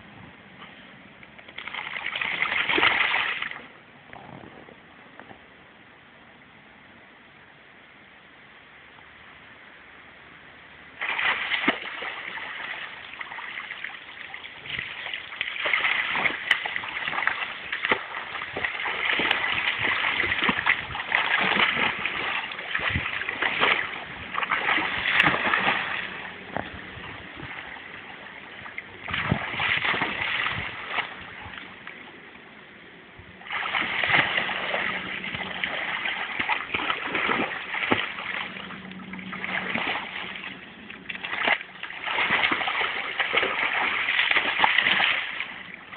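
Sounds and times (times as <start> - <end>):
dog splashing in water: 1.5 - 3.6, 11.0 - 31.7, 33.5 - 45.9.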